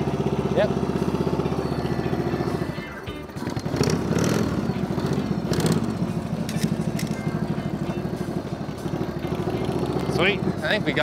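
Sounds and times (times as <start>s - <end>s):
motorcycle engine passing: 0.0s - 11.0s
music: 1.4s - 11.0s.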